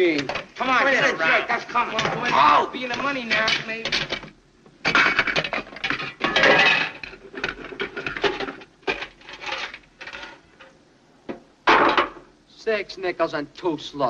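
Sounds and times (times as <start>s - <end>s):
metal scraping and clanking: 1.6s - 10.8s.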